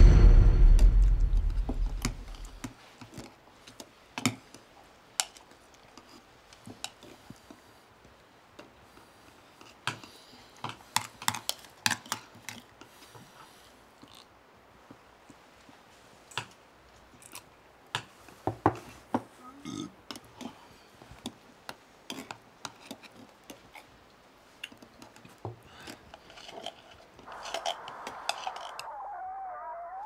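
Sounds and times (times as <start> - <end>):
wavering tone: 27.3 - 30.0.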